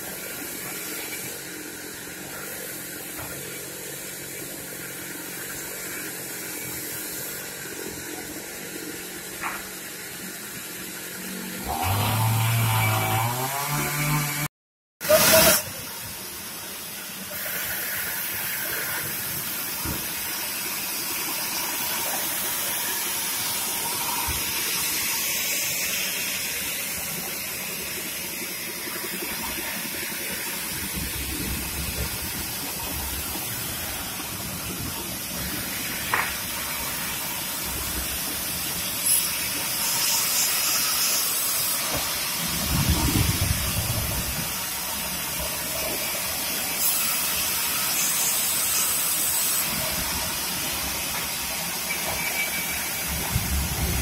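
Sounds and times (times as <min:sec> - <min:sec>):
band saw cutting log: 0:00.0 - 0:15.7.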